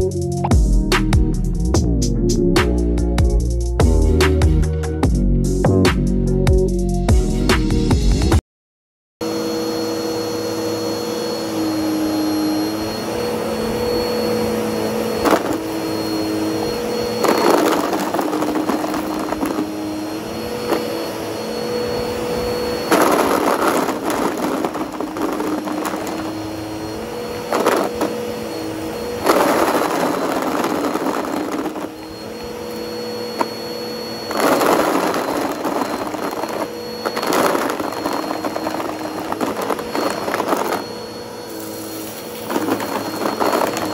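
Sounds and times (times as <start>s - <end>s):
vacuum cleaner motor hum: 9.2s - 43.9s
vacuum sucking up erasers rattling: 10.5s - 43.9s.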